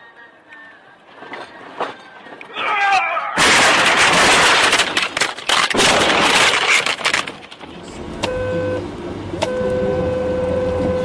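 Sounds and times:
vehicle crash crunching: 0:03.4 - 0:08.3
car horn: 0:08.2 - 0:08.8, 0:09.4 - 0:11.0.

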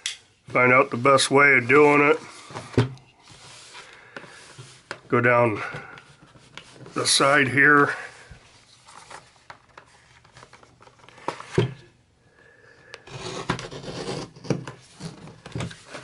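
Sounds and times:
knife scraping plastic blister pack: 0:13.0 - 0:16.0.

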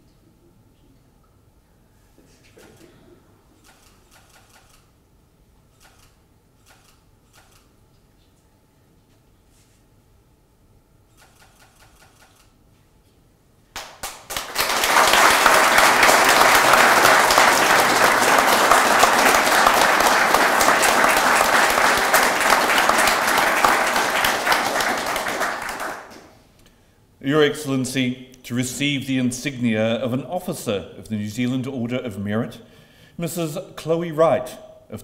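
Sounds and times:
audience applauding: 0:13.8 - 0:26.4.

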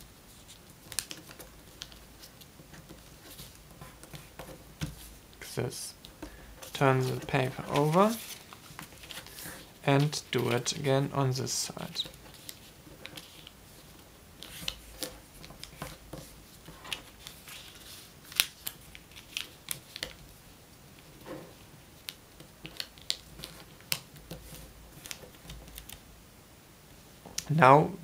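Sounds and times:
paper folding and creasing: 0:00.3 - 0:10.9, 0:11.7 - 0:20.2, 0:22.0 - 0:26.0.

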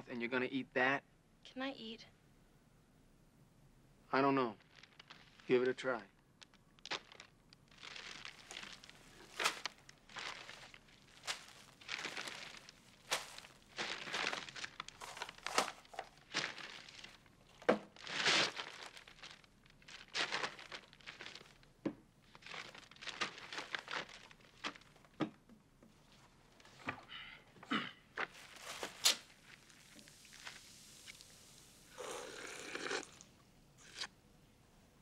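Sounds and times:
paper bag crinkling and rustling: 0:06.4 - 0:25.2, 0:28.2 - 0:31.4.

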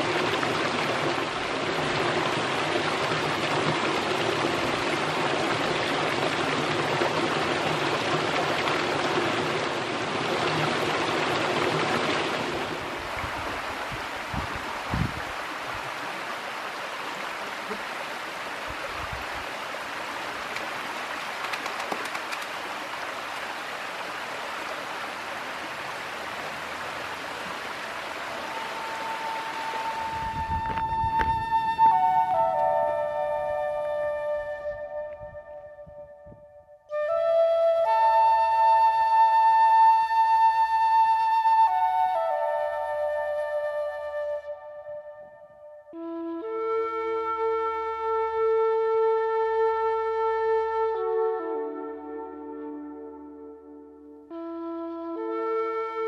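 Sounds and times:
stream water rushing over rock: 0:00.0 - 0:34.4.

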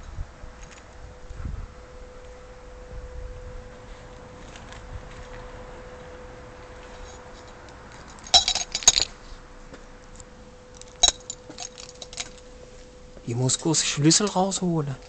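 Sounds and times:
faint steady hum: 0:00.0 - 0:15.0
keys jangling: 0:07.5 - 0:09.1, 0:10.8 - 0:12.5.

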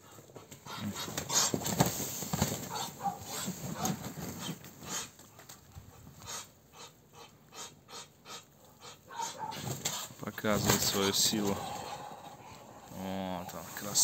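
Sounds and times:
ducks scuffling in snow: 0:00.0 - 0:06.5, 0:07.2 - 0:14.0
wings flapping: 0:00.6 - 0:05.8, 0:09.3 - 0:14.0.

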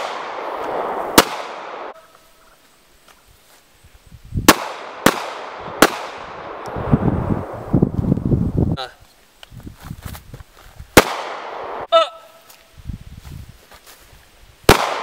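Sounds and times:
pistol shots with echo: 0:00.0 - 0:02.0, 0:04.5 - 0:06.6, 0:11.0 - 0:11.9, 0:14.7 - 0:15.0.

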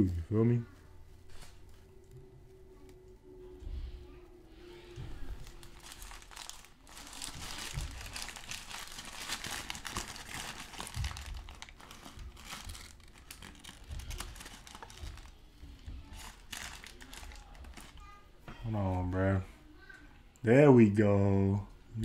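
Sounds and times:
paper wrapper crinkling: 0:05.3 - 0:15.4, 0:16.0 - 0:18.0.

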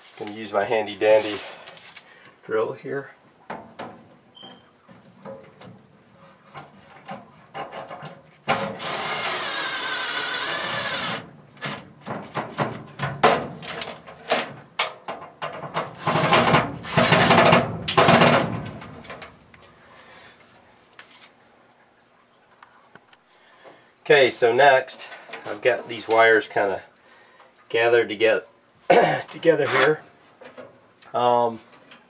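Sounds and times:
cordless drill driving screws: 0:08.5 - 0:11.8.

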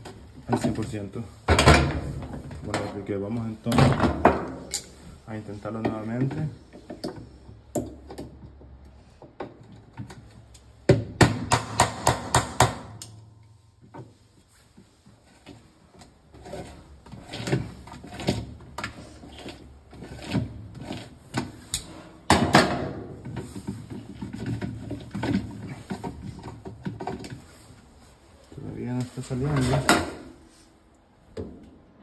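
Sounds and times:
metal tools knocking and scraping: 0:29.4 - 0:30.4.

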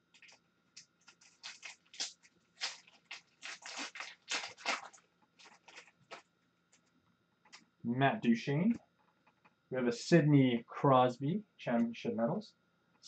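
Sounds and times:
foil wrapper crinkling: 0:00.0 - 0:06.9.

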